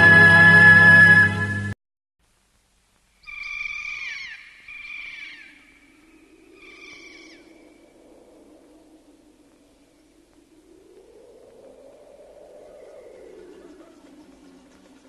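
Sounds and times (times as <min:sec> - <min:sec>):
theme music: 0:00.0 - 0:01.8
faint low wind: 0:00.0 - 0:15.0
shrill bird of prey cry: 0:03.2 - 0:07.8.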